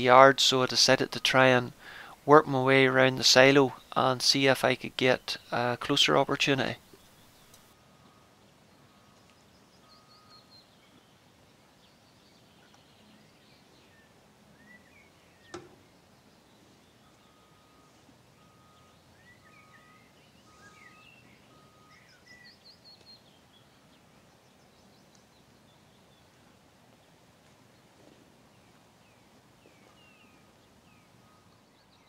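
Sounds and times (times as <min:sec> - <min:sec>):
faint birdsong chirping: 0:00.0 - 0:32.0
faint short tone: 0:07.8 - 0:10.6, 0:17.0 - 0:22.1.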